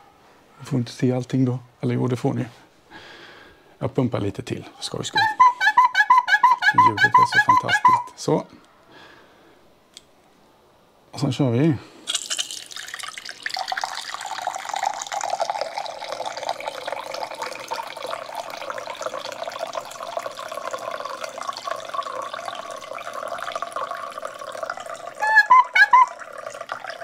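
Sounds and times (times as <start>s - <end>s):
water running into a glass: 12.1s - 27.0s.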